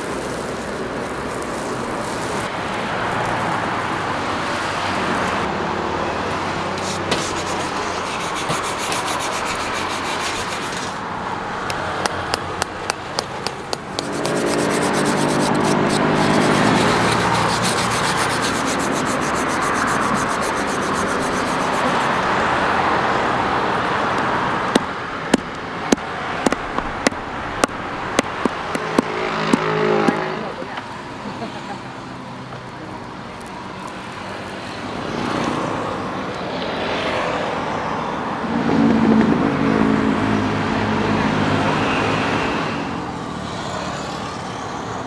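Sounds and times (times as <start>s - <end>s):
skin scraped against wooden stump: 6.8s - 11.1s, 12.0s - 22.4s
hammer pounding skin on stump: 12.0s - 17.8s.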